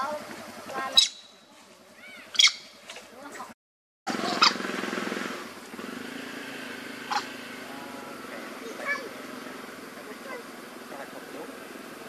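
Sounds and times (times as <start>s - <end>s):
baby monkey squealing: 0.9s - 1.4s, 2.0s - 2.8s, 4.2s - 4.6s, 7.1s - 7.3s
low buzzing drone: 4.1s - 12.0s.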